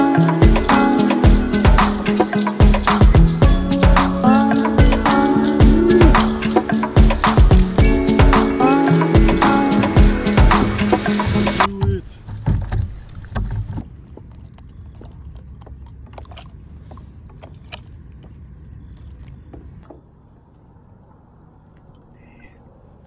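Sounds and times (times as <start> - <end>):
heavy bumps: 9.2 - 14.0
wind and water rumble: 10.1 - 23.0.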